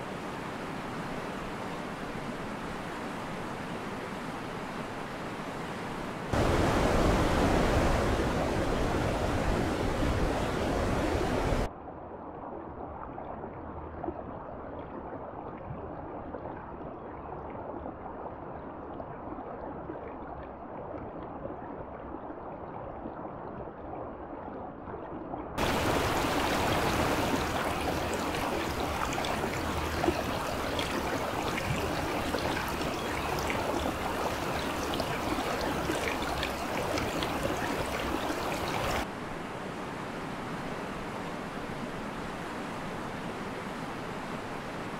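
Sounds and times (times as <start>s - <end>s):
rushing water: 0.0s - 11.7s, 25.6s - 44.9s.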